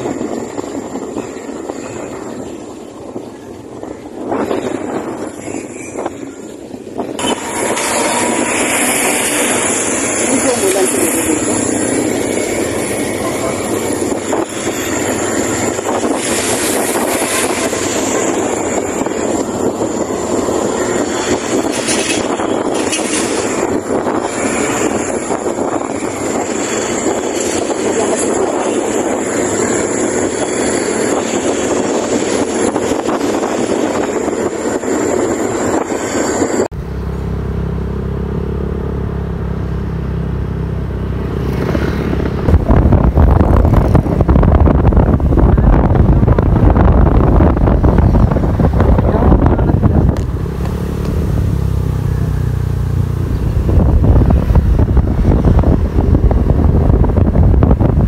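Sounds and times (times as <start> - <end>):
low heavy rumble: 0.0 - 58.0
motorcycle engine running: 36.7 - 58.0.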